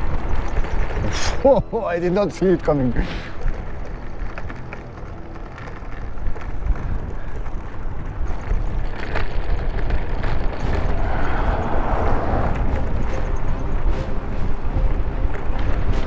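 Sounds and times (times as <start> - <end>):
trike rumbling over cobblestones: 0.0 - 16.0
wheels knocking and rattling: 0.0 - 16.0
wind noise on microphone: 5.9 - 16.0.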